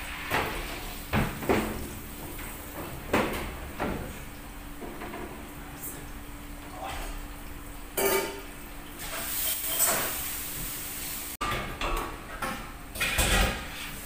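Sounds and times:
rice sizzling in hot oil: 0:08.9 - 0:11.4.

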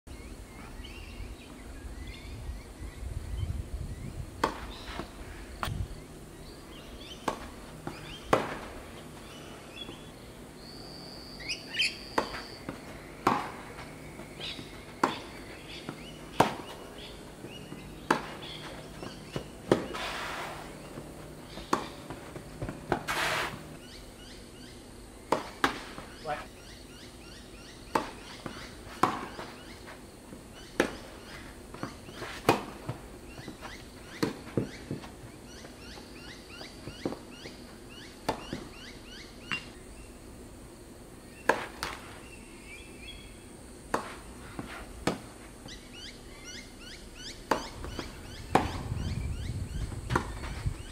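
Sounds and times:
racket striking tennis ball: 0:04.4 - 0:05.8, 0:06.7 - 0:10.1, 0:12.0 - 0:23.8, 0:25.3 - 0:26.5, 0:27.8 - 0:35.1, 0:41.4 - 0:42.1, 0:43.9 - 0:45.4, 0:47.4 - 0:49.0, 0:50.0 - 0:50.6
ball bouncing on court: 0:12.1 - 0:20.0, 0:20.8 - 0:23.7.

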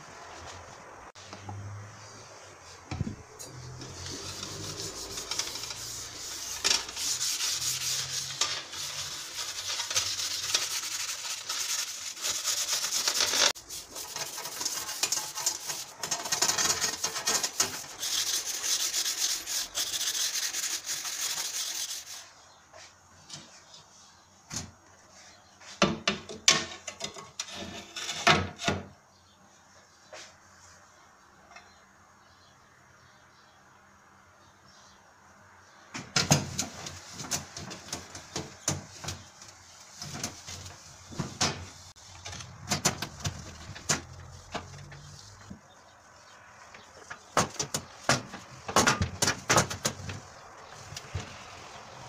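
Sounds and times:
steel wool scrubbing wire rack: 0:03.4 - 0:22.2.

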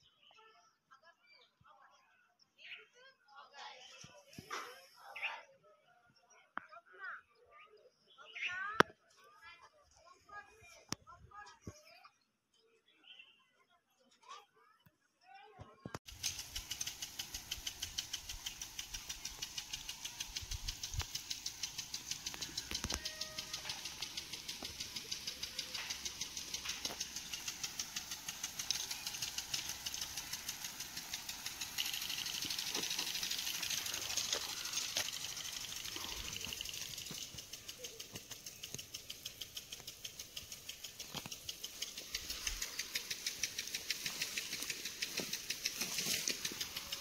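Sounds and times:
impact sprinkler ticking: 0:16.0 - 0:47.0
water spray hissing: 0:16.1 - 0:47.0.

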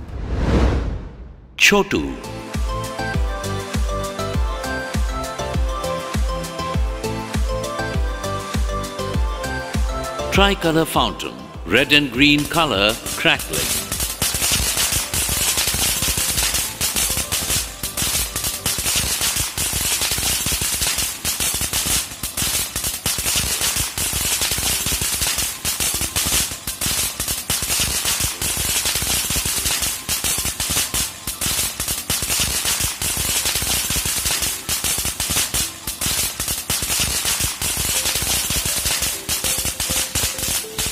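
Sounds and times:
firework crackling pops: 0:12.3 - 0:40.9
firework hissing sparks: 0:12.3 - 0:40.9.

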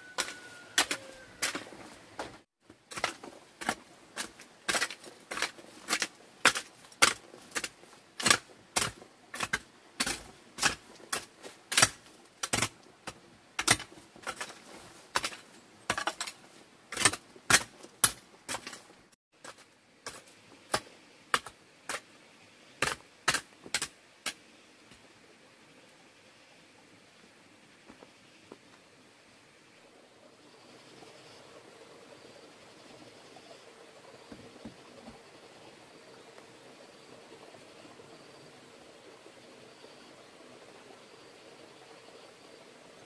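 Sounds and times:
metal hoe chopping stony soil: 0:00.0 - 0:22.1, 0:22.8 - 0:24.4.

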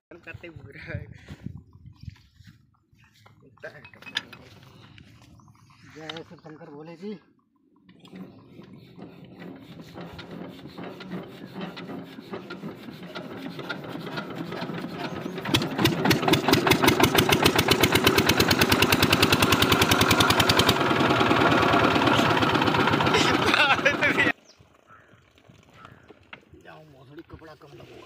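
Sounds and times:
diesel engine hand cranked chuffing: 0:07.5 - 0:28.0
diesel engine exhaust beat: 0:08.5 - 0:24.4.

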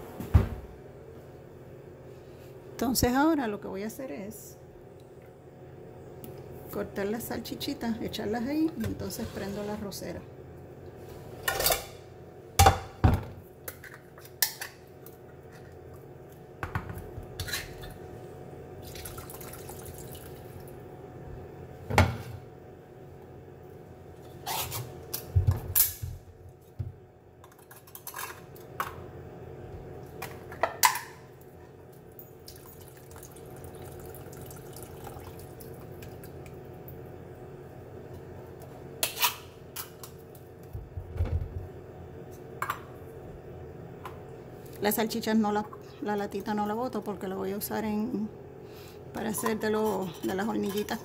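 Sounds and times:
faint steady hum: 0:00.0 - 0:51.0
liquid trickling: 0:18.8 - 0:20.8, 0:32.4 - 0:36.3.

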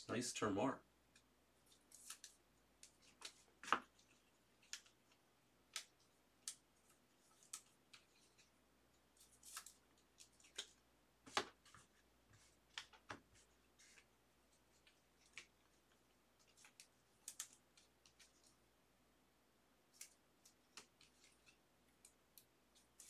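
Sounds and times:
cards clicking and rustling: 0:01.7 - 0:08.5, 0:09.2 - 0:11.9, 0:14.8 - 0:18.6.

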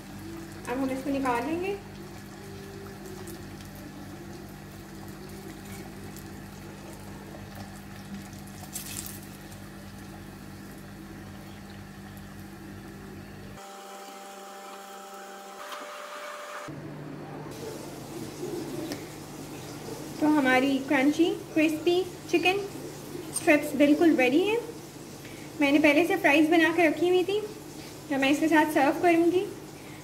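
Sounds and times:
chicken sizzling in hot oil: 0:17.6 - 0:30.0.

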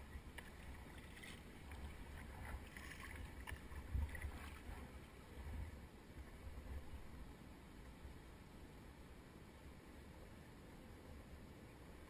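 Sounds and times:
paddle splashing water: 0:00.0 - 0:06.4.

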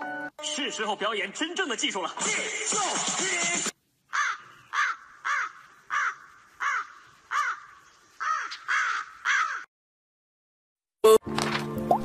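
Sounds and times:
crow cawing: 0:04.1 - 0:09.7.

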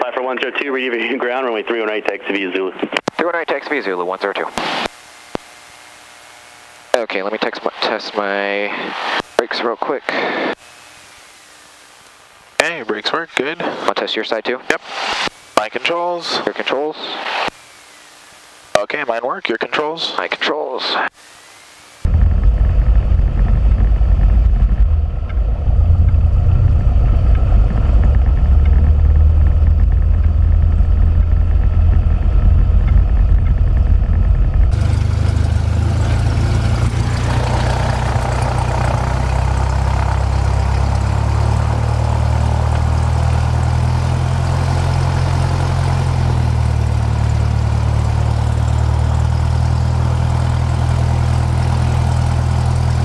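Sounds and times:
propeller plane engine droning: 0:00.0 - 0:19.1, 0:21.2 - 0:53.0.

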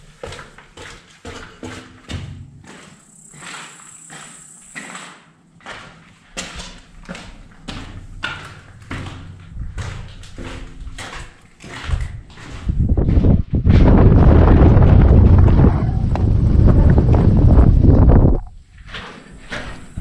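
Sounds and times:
footsteps on gravel: 0:00.0 - 0:15.5
wind buffeting microphone: 0:07.0 - 0:18.9.

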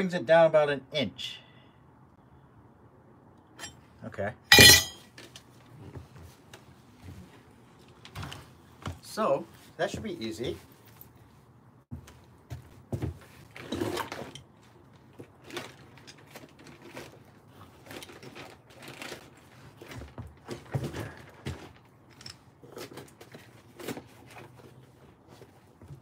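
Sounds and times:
tool bag rustling: 0:13.4 - 0:26.0.

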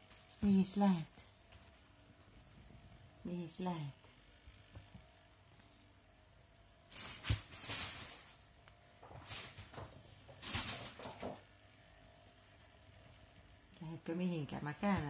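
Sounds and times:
rustling and scuffling: 0:06.5 - 0:11.5.

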